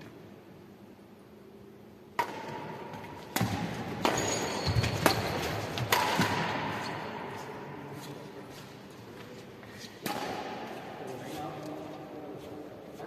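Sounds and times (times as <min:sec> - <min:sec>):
rackets striking shuttlecock: 0:02.1 - 0:07.1, 0:10.0 - 0:10.8.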